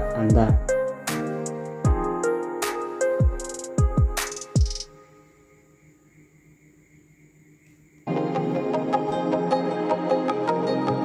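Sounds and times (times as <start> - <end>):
faint background music tones: 0.0 - 6.2.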